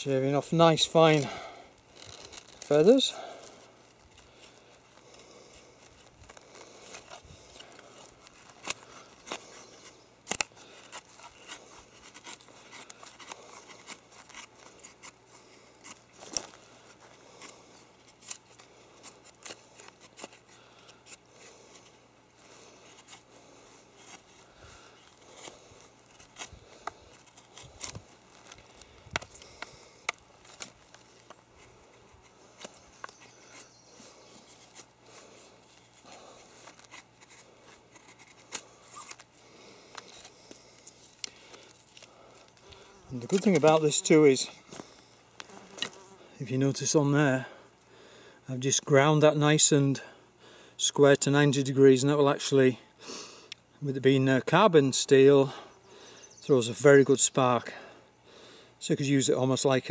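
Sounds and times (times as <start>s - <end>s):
knife scraping wood: 1.1s - 44.9s.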